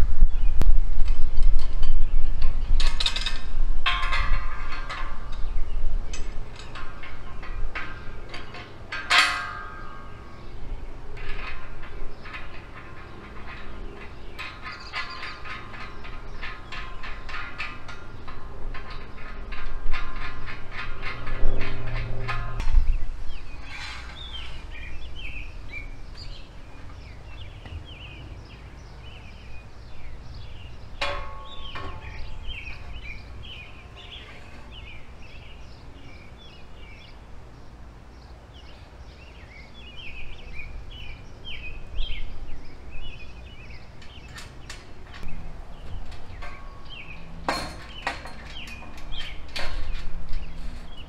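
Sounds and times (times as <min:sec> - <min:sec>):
small birds chirping and singing: 0:00.0 - 0:51.0
knocks of metal rails: 0:02.7 - 0:10.5, 0:11.1 - 0:23.0, 0:30.9 - 0:35.4, 0:44.0 - 0:51.0
ringing metallic clank: 0:02.8 - 0:28.2, 0:29.0 - 0:37.1, 0:43.4 - 0:51.0.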